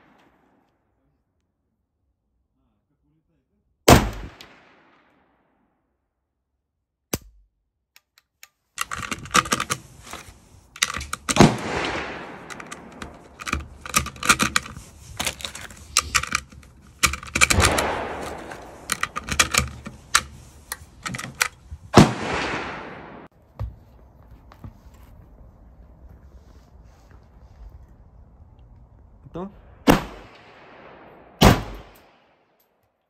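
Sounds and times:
echoing rifle gunshots: 0:03.9 - 0:05.4, 0:11.3 - 0:13.8, 0:17.4 - 0:19.5, 0:21.9 - 0:23.3, 0:29.7 - 0:32.5
cartridges clicking into magazine: 0:12.4 - 0:21.6.

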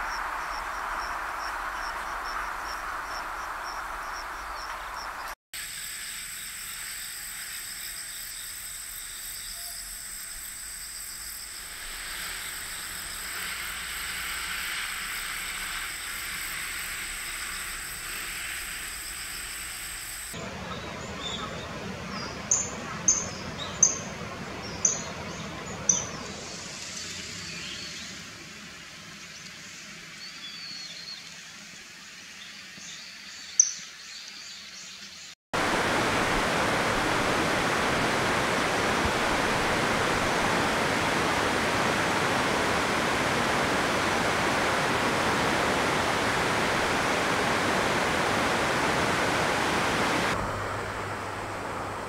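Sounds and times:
mountain stream rushing: 0:00.0 - 0:05.4, 0:35.6 - 0:52.0.

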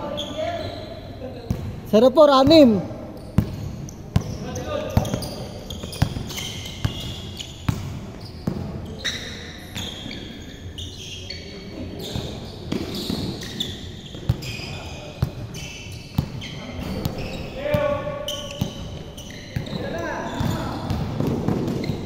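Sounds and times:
sneakers squeaking: 0:00.0 - 0:22.0
basketball bouncing on court: 0:01.5 - 0:08.8, 0:12.1 - 0:14.6, 0:15.2 - 0:22.0.

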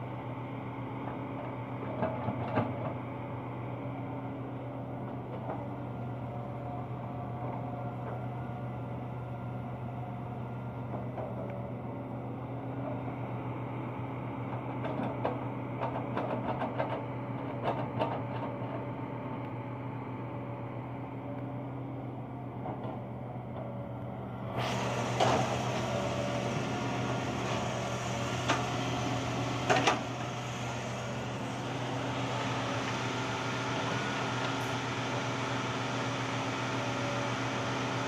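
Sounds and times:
excavator diesel engine running: 0:00.0 - 0:38.0.

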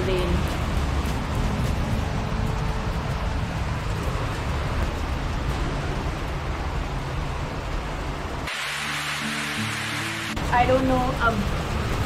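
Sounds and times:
music: 0:00.0 - 0:03.6, 0:08.7 - 0:12.0
heavy rain falling: 0:00.0 - 0:12.0.

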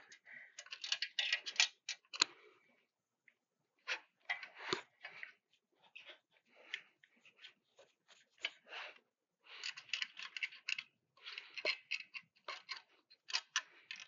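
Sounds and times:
small metal clicks and scrapes: 0:00.0 - 0:02.4, 0:09.5 - 0:14.0.

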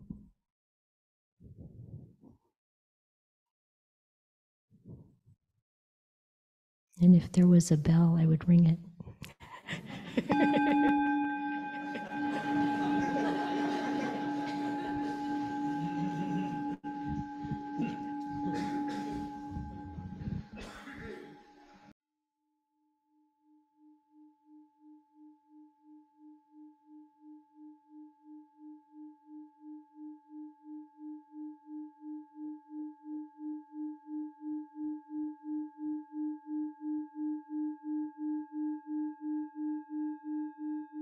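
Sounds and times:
singing bowl ringing: 0:10.2 - 0:20.7, 0:23.4 - 0:41.0.

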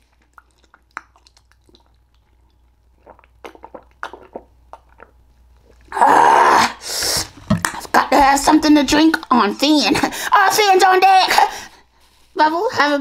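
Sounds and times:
chewing mouth sounds: 0:00.0 - 0:05.9.

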